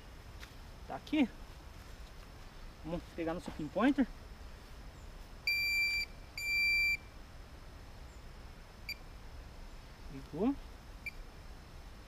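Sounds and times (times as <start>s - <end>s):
pinpointer chirp: 5.4s - 7.2s, 11.0s - 11.3s
pinpointer high beeps: 5.5s - 7.1s.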